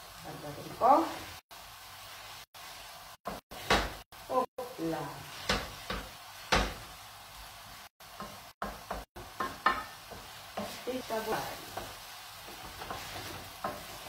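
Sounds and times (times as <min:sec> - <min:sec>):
pasta sizzling in a pan: 0:00.0 - 0:14.0
utensil scraping a pan: 0:09.4 - 0:14.0.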